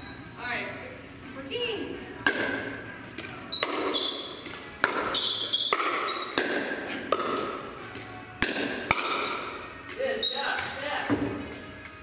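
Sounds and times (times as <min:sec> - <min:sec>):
paddle hitting plastic ball: 0:02.2 - 0:02.6, 0:03.2 - 0:10.0.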